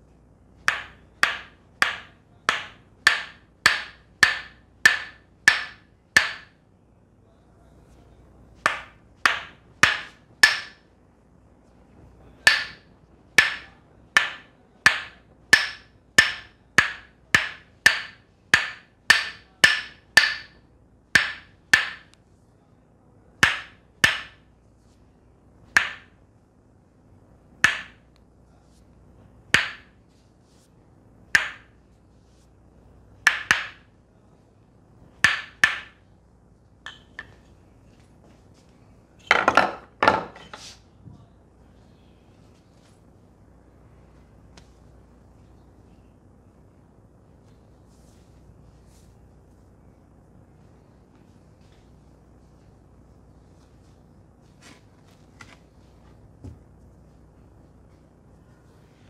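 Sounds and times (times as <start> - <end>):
wooden mallet knocking on wedge: 0.6 - 6.6, 8.6 - 10.8, 12.4 - 20.6, 21.2 - 22.1, 23.4 - 24.5, 25.7 - 26.2, 27.6 - 28.0, 29.5 - 30.0, 31.3 - 31.7, 33.2 - 33.9, 35.2 - 36.0, 36.8 - 37.4.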